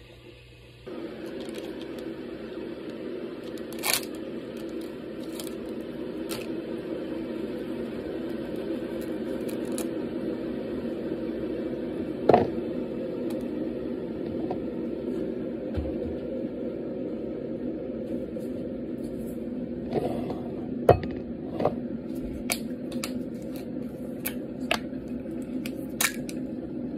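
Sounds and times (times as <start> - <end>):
kettle heating hum: 0.0 - 26.9
tea packet rustling and tearing: 1.2 - 2.0, 3.4 - 6.5, 8.9 - 9.9.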